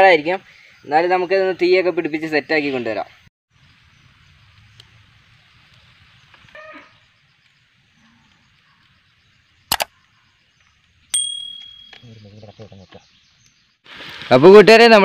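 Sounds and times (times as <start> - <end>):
faint outdoor hiss: 0.0 - 15.0
bright bell ding: 11.2 - 12.3.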